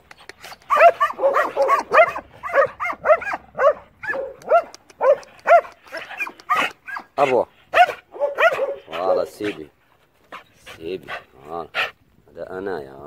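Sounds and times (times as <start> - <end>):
dog barking rapidly: 0.7 - 9.6.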